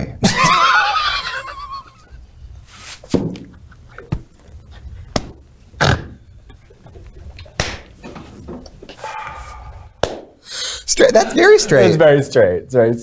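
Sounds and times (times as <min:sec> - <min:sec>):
hand smacks: 0:05.1 - 0:05.4, 0:07.6 - 0:07.9, 0:10.0 - 0:10.4
breathy wheezes and gasps: 0:08.9 - 0:10.9.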